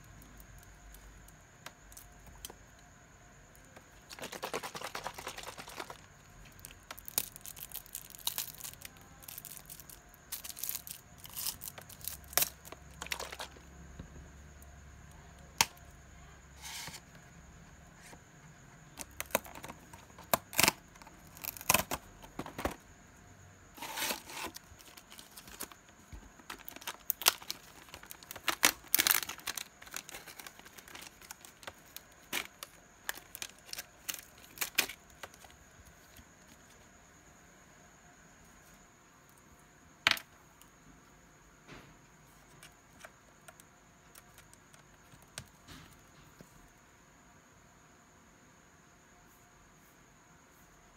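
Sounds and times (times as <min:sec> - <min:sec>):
plastic packaging crinkling: 0:04.1 - 0:13.6, 0:19.0 - 0:22.8, 0:23.8 - 0:35.5
plastic film peeling: 0:19.0 - 0:22.0, 0:26.4 - 0:35.5.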